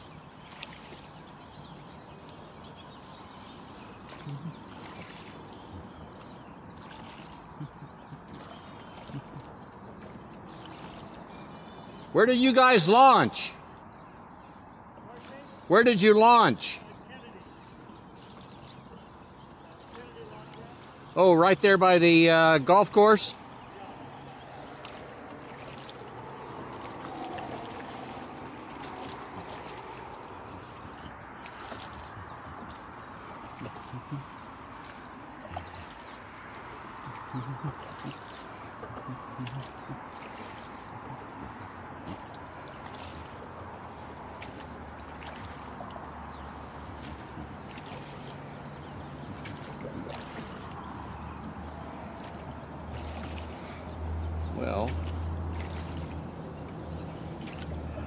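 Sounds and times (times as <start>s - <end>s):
water trickling around a rowboat: 0.0s - 58.0s
sharp splashes or knocks: 24.8s - 32.8s, 44.3s - 46.0s, 52.2s - 53.7s.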